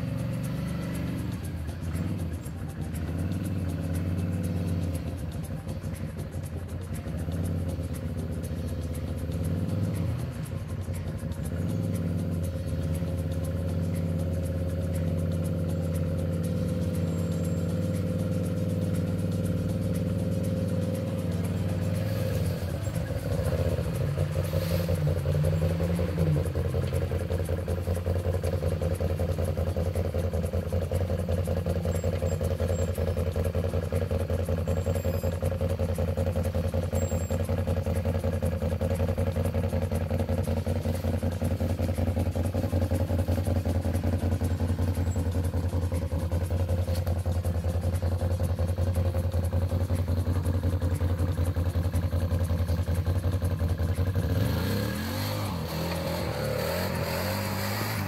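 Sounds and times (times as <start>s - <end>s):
quad engine running at low revs: 0.0s - 58.0s.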